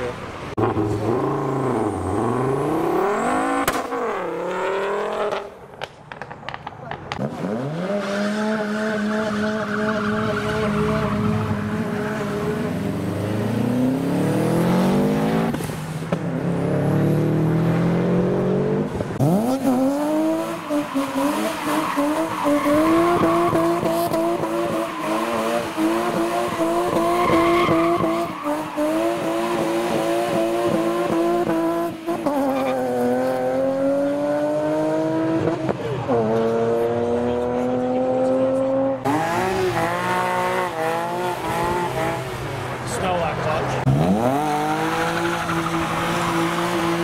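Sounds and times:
car engine revving hard: 7.2s - 15.6s, 16.3s - 42.4s, 43.8s - 47.0s
tyre squeal: 24.7s - 29.3s.

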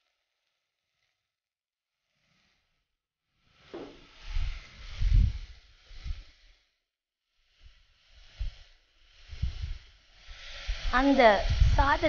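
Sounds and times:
rice sizzling in hot oil: 10.0s - 12.0s.

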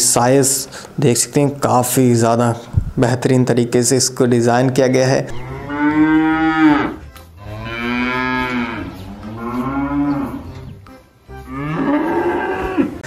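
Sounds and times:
cows mooing: 5.3s - 10.8s, 11.4s - 13.0s.

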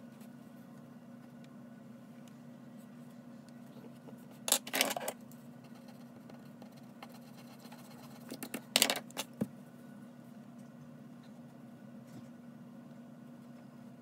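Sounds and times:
pencil scratching on paper: 5.6s - 8.4s.

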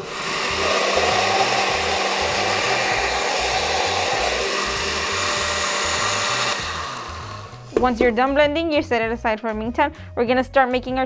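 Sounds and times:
blender motor whirring: 0.0s - 8.0s.

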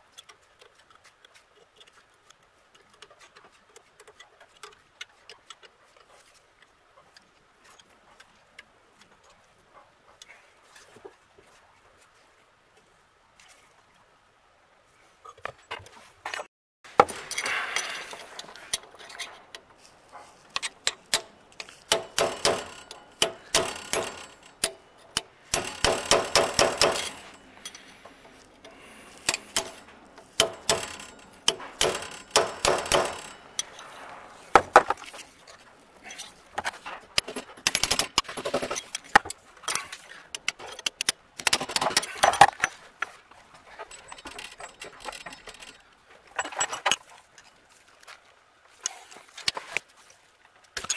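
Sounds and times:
sharp metal clinks: 20.6s - 28.0s, 28.6s - 34.0s.

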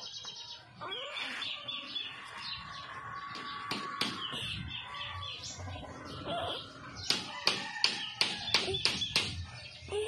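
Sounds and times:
birds chirping: 0.0s - 10.0s
tool tapping on bamboo: 7.1s - 9.4s.

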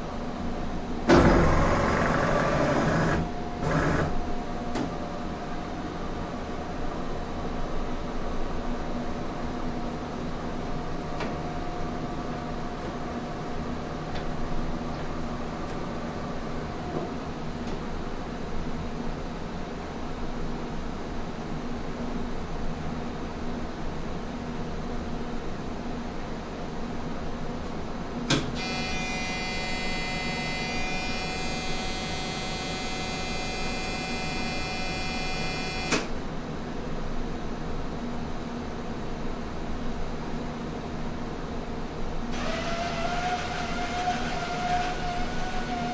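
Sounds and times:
steady mechanical hum: 0.0s - 45.9s
high-pitched whine and buzz: 28.6s - 36.1s.

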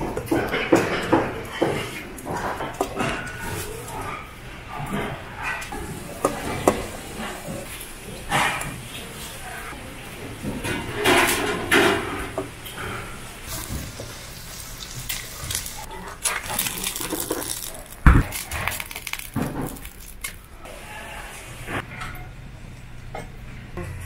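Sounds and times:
metal utensils clattering on trays: 0.0s - 9.4s, 10.1s - 14.1s.

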